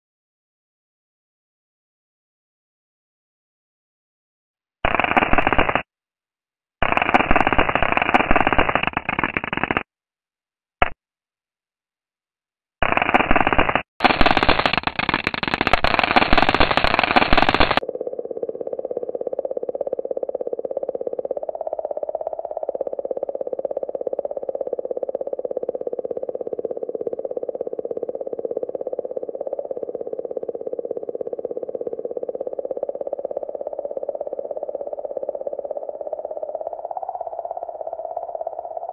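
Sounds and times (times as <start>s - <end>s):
rapid clicking pulse: 4.8s - 5.9s, 6.8s - 9.9s, 12.8s - 38.9s
rapid crackling static: 4.9s - 5.8s, 6.8s - 9.8s, 12.8s - 17.8s
warbling mid-pitched hum: 6.8s - 9.8s, 12.8s - 38.9s.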